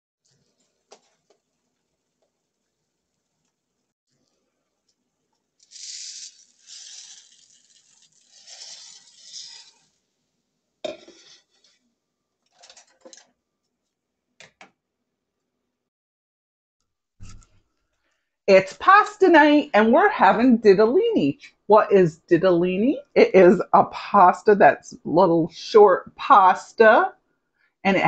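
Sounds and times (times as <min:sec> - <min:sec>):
dishes and utensils clattering: 0:10.9 - 0:11.8.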